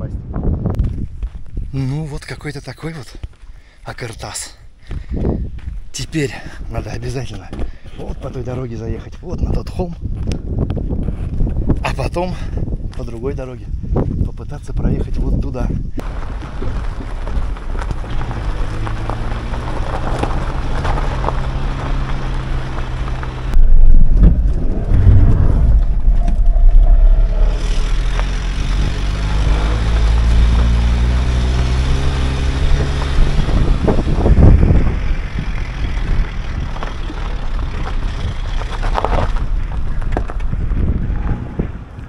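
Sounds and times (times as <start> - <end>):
van engine driving: 16.0 - 42.0
loud low rumble: 23.4 - 30.6.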